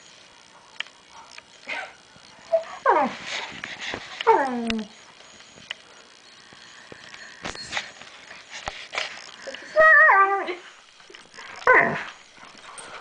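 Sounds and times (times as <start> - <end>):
puppy whining: 1.7 - 3.5, 4.2 - 5.1, 9.4 - 12.9.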